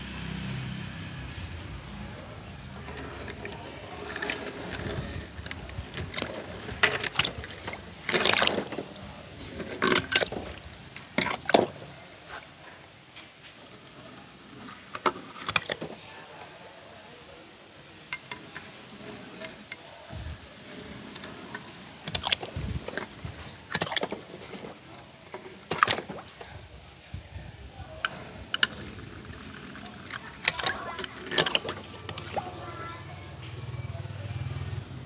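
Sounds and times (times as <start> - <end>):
toy cars splashing into water: 2.8 - 12.6, 14.7 - 16.0, 20.7 - 26.8, 28.0 - 32.9.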